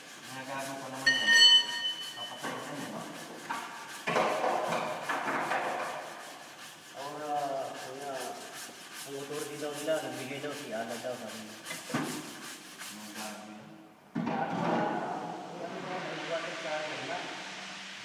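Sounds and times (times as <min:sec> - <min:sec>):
gloved hand scraping steel: 0:00.0 - 0:13.0
steel tool clinking: 0:01.1 - 0:02.4.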